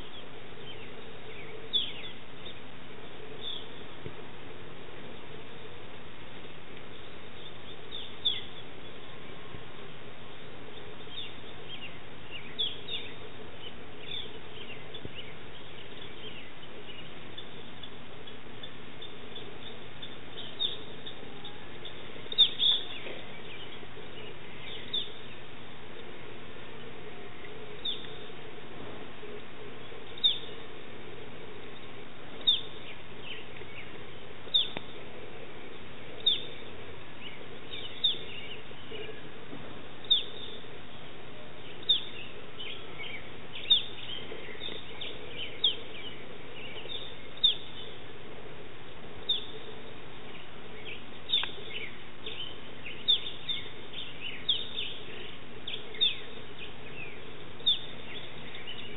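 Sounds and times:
prairie chicken chirping: 0:14.0 - 0:25.5, 0:29.3 - 0:30.8, 0:31.8 - 0:34.9, 0:36.1 - 0:36.7, 0:41.7 - 0:48.0, 0:49.2 - 0:58.9.

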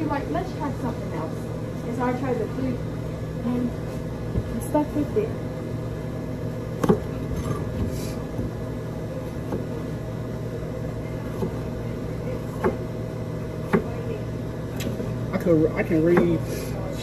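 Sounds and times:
machinery humming: 0:00.0 - 0:17.0.

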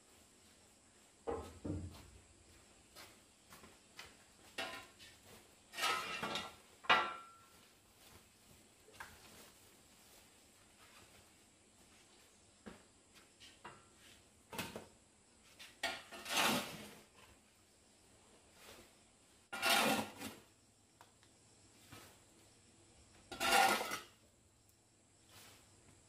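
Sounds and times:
shovel scraping concrete: 0:05.7 - 0:06.6, 0:15.8 - 0:17.1, 0:19.5 - 0:20.4, 0:23.3 - 0:24.2.

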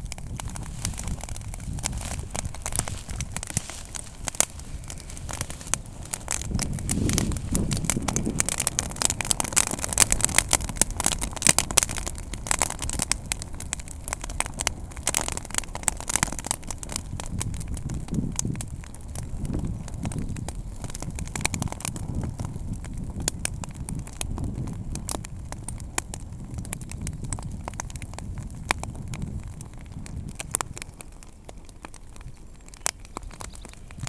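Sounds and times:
grass fire crackling and popping: 0:00.0 - 0:34.0
low rush of flame: 0:00.0 - 0:34.0.

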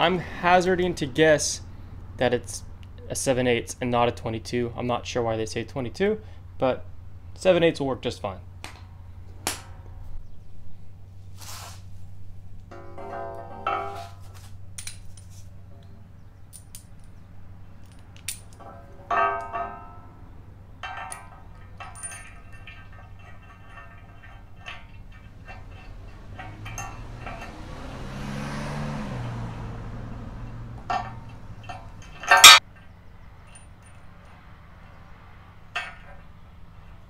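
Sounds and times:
metal parts clinking: 0:12.7 - 0:15.5, 0:16.4 - 0:34.1, 0:35.6 - 0:37.0.

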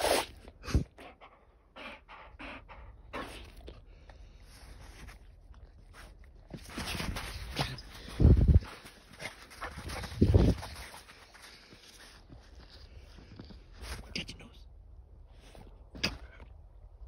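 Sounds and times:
dog sniffing in snow: 0:01.8 - 0:14.1.

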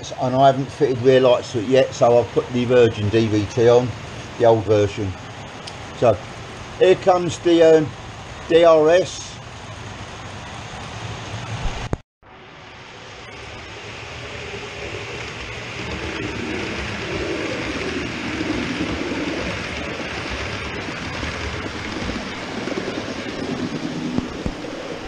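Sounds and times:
model train wheels rumbling: 0:00.0 - 0:11.6, 0:12.8 - 0:25.0
model train motor hum: 0:12.8 - 0:25.0.

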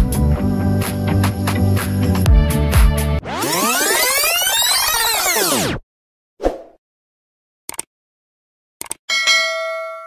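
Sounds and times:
electronic dance music: 0:01.1 - 0:05.8.

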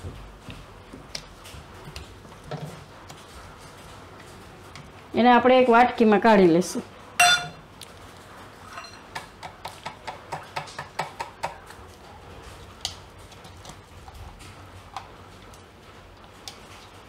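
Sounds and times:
steel bowl ringing: 0:07.2 - 0:07.6, 0:08.7 - 0:09.0.

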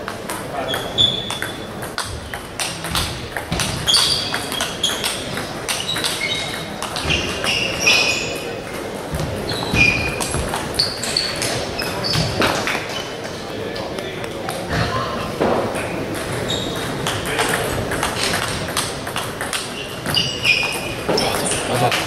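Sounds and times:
table tennis balls clicking: 0:00.0 - 0:22.0
short high squeaks: 0:03.8 - 0:05.1, 0:05.7 - 0:08.4, 0:09.5 - 0:12.4, 0:19.8 - 0:21.6.

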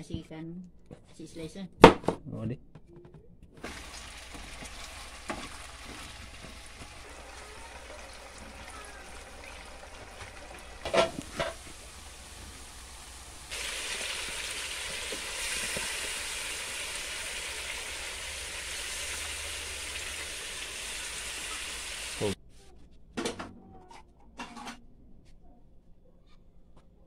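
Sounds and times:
chicken frying sizzle: 0:03.6 - 0:22.4
potatoes sizzling in pan: 0:03.6 - 0:22.4.

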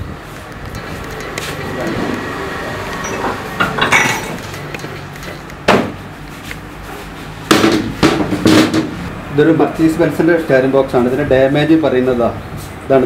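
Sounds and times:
ringing metal clanks: 0:03.0 - 0:05.5.

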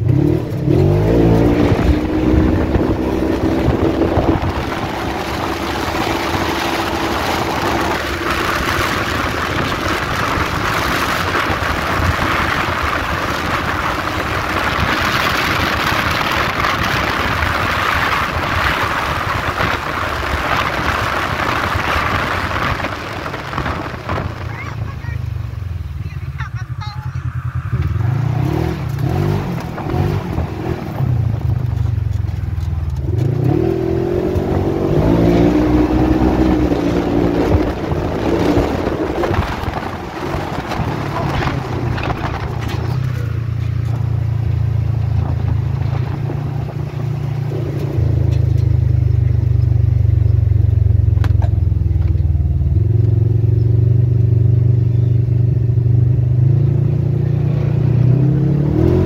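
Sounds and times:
wind noise: 0:00.0 - 0:50.3
vehicle engine revving: 0:00.0 - 0:59.0
rattles: 0:38.3 - 0:44.2.

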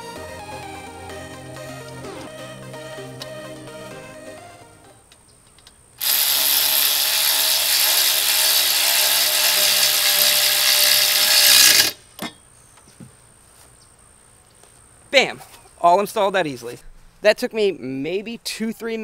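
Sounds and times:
ratchet wrench clicking: 0:06.0 - 0:12.0.

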